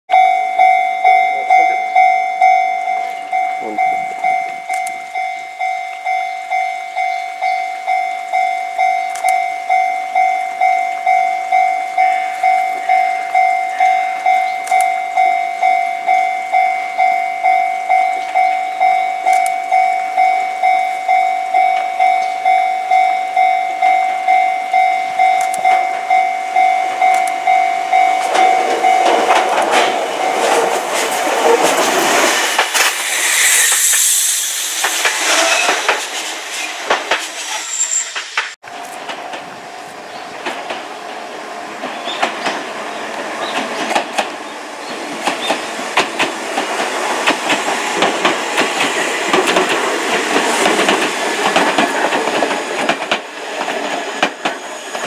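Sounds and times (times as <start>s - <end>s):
level-crossing warning bell ringing: 0.1s - 32.6s, 38.7s - 42.6s
train wheels and running gear: 0.1s - 55.0s.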